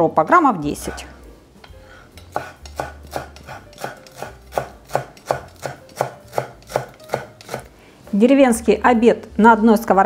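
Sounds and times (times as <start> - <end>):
knife chopping on wooden board: 2.2 - 7.7.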